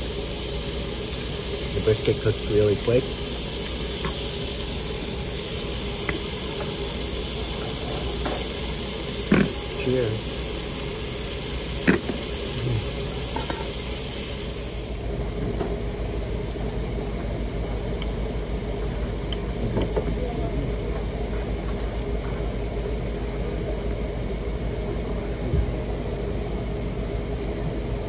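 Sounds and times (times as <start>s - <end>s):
meat sizzling on grill: 0.0s - 19.8s.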